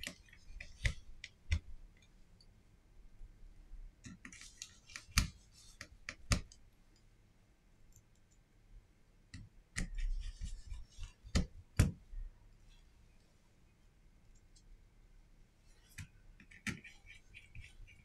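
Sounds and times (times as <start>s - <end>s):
scratchy rubbing: 4.2s - 6.3s, 9.8s - 11.4s, 15.6s - 18.0s.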